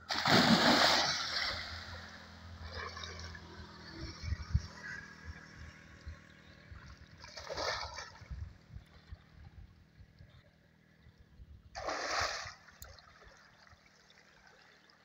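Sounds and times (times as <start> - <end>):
water splashing: 0.0 - 4.0, 7.0 - 8.4, 11.8 - 14.9.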